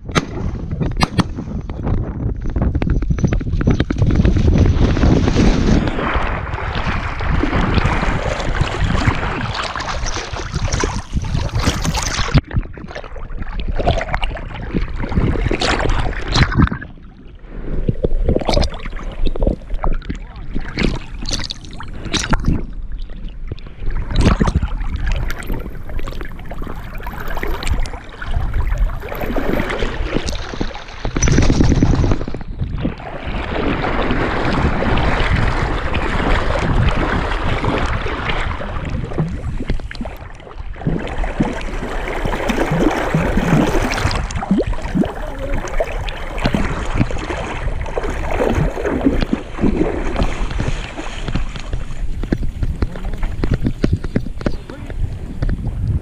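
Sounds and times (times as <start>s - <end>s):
dog swimming splashing water: 4.2s - 12.4s, 24.3s - 32.3s, 33.0s - 55.0s.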